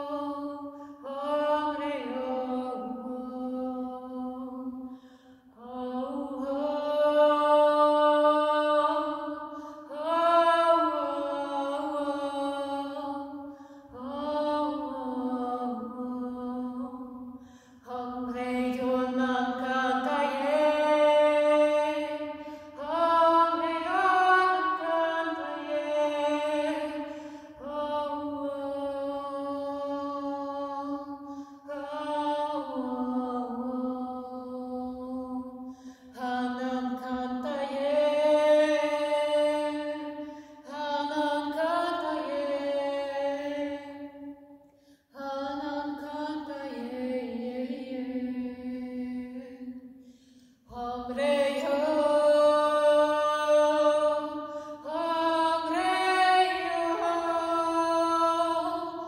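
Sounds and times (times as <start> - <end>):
woman singing a wordless chant: 0.0 - 59.0
breaths: 0.7 - 1.0, 4.8 - 5.6, 9.4 - 9.9, 13.4 - 14.0, 17.3 - 17.9, 22.3 - 22.8, 27.0 - 27.6, 31.2 - 31.7, 35.6 - 36.2, 40.2 - 40.7, 44.6 - 45.2, 49.9 - 50.7, 54.4 - 54.8.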